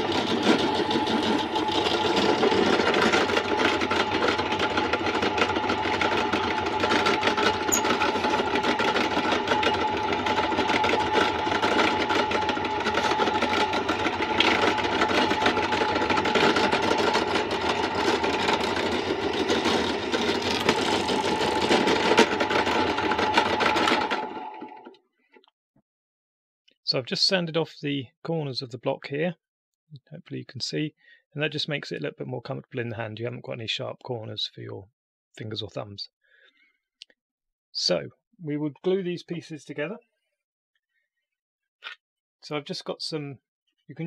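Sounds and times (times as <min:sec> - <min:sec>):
drill bit boring wood: 0:00.0 - 0:25.0
drill press humming: 0:00.0 - 0:25.0.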